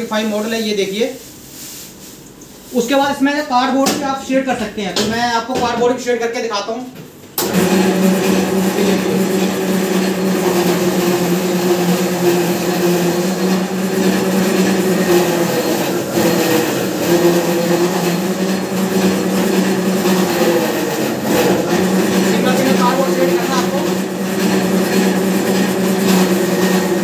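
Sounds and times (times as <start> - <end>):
paper shredder motor hum: 7.4 - 27.0.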